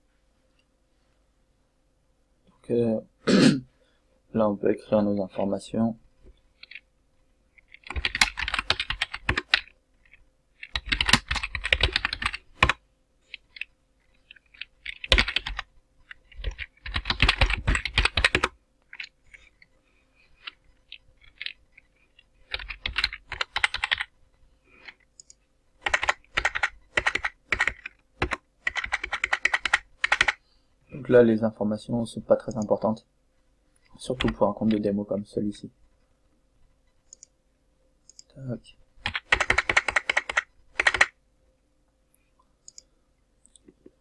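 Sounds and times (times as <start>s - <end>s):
computer keyboard typing: 7.6s - 19.6s, 20.4s - 24.1s, 24.8s - 30.4s, 34.1s - 34.8s, 39.0s - 41.2s.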